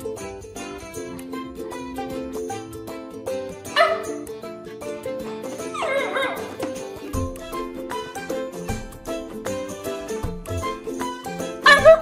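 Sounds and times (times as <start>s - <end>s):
instrumental background music: 0.0s - 12.0s
puppy whining: 3.7s - 4.2s, 5.6s - 6.7s.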